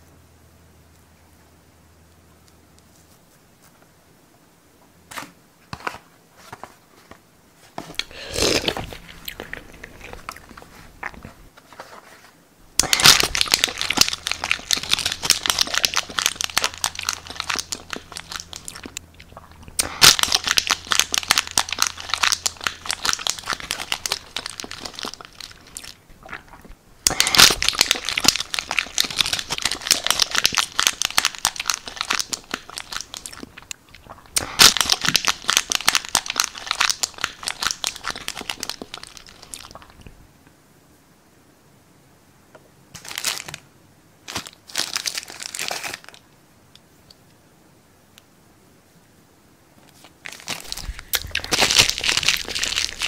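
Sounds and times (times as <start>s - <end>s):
plastic tray crumpling and crackling: 12.8s - 19.0s, 19.8s - 33.7s, 34.4s - 40.0s, 44.2s - 46.2s, 49.9s - 53.0s.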